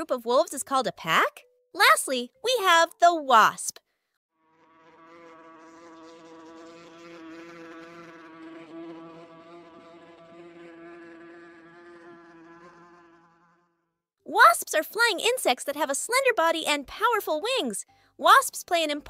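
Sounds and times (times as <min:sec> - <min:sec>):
wasp buzzing: 0:04.3 - 0:14.1.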